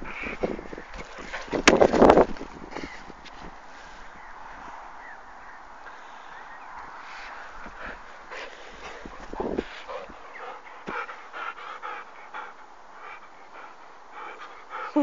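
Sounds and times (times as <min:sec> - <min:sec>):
small dog panting: 0:07.0 - 0:15.0.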